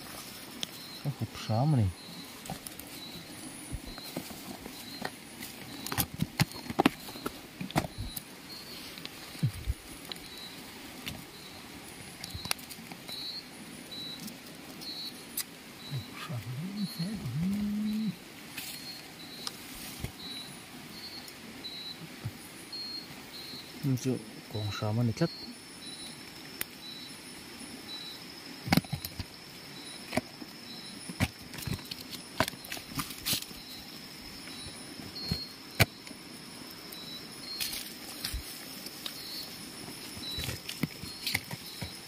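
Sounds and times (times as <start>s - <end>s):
pebbles and stems rustling: 0.0s - 17.9s, 28.6s - 36.3s, 36.9s - 42.0s
night insects trilling: 0.0s - 42.0s
steady hiss: 0.0s - 42.0s
faint high chirps: 0.6s - 10.7s, 11.3s - 19.6s, 20.2s - 26.2s.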